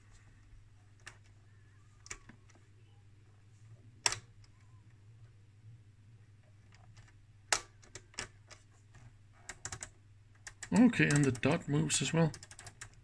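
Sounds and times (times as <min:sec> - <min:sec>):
faint low hum: 0:00.0 - 0:13.0.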